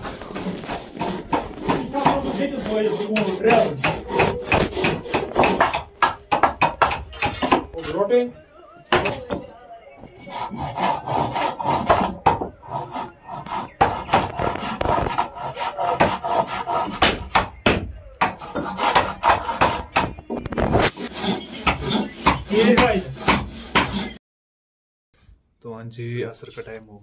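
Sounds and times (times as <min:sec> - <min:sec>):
hand saws cutting wood: 0:00.0 - 0:08.1, 0:10.2 - 0:17.5, 0:18.2 - 0:20.1, 0:20.7 - 0:24.2.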